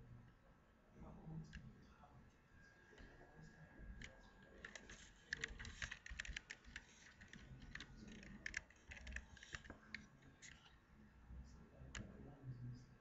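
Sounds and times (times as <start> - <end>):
keyboard keys clicking: 4.0 - 10.6.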